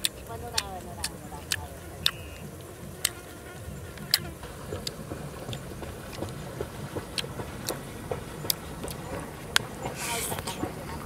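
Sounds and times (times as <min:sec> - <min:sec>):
eating clicks and smacks: 0:00.0 - 0:11.0
low steady rumble: 0:00.0 - 0:11.0.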